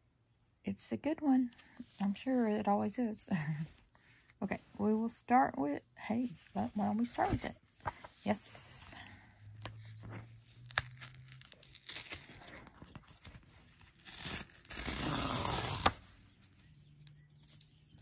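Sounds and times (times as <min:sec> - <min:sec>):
packaging tearing: 0:10.6 - 0:13.3, 0:13.9 - 0:16.0.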